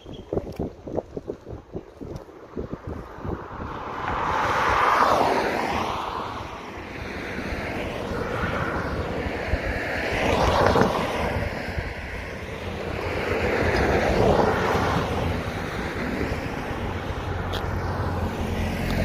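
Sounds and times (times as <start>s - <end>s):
wind rumble on microphone: 0.0s - 19.0s
cars driving past: 3.2s - 19.0s.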